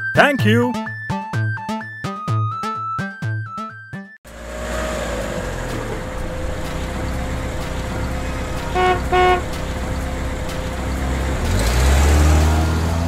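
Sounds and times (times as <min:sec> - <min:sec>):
cartoon truck engine: 0:04.3 - 0:13.0
horn toots: 0:08.3 - 0:09.9.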